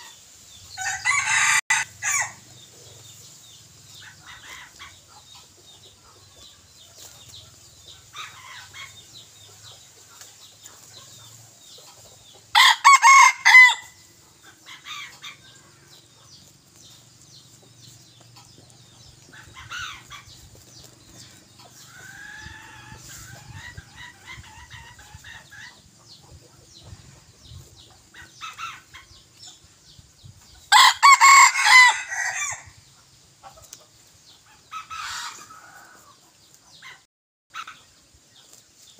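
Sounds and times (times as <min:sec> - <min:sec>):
rooster crowing: 0:00.8 - 0:02.4, 0:12.5 - 0:14.0, 0:30.7 - 0:32.7.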